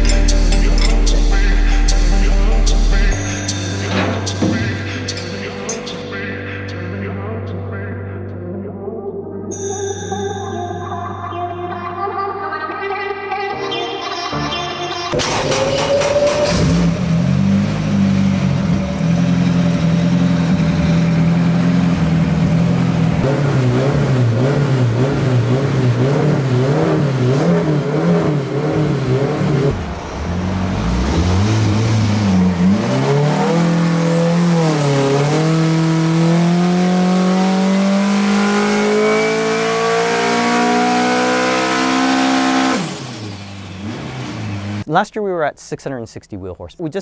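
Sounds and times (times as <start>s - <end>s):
race engine revving under load: 15.2s - 44.9s.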